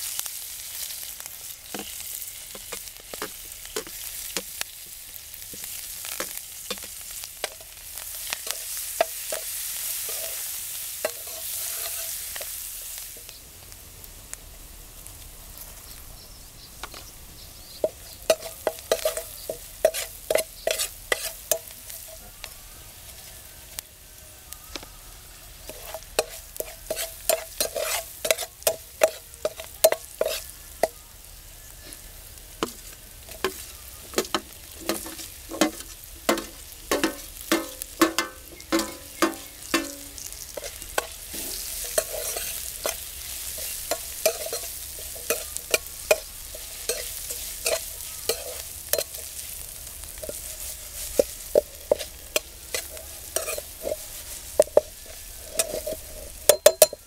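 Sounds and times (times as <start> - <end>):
potatoes sizzling in hot oil: 0.0 - 57.0
metal spatula scraping iron pan: 11.1 - 12.5, 18.3 - 22.2, 25.6 - 30.5, 32.6 - 57.0.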